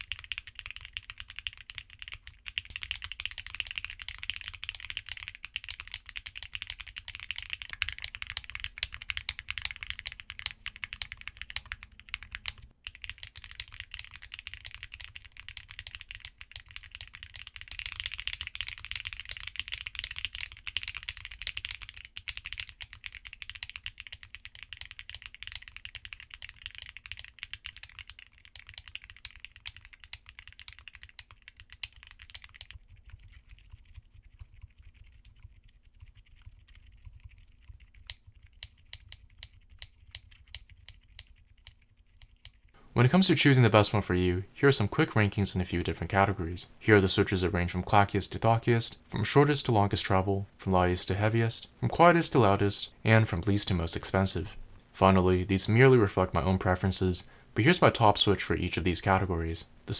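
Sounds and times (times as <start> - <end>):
rapid typing on mechanical keyboard: 0.0 - 42.7.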